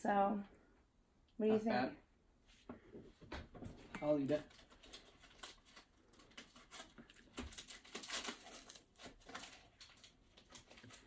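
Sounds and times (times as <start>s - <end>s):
crisp wafer crunching: 4.3s - 11.0s.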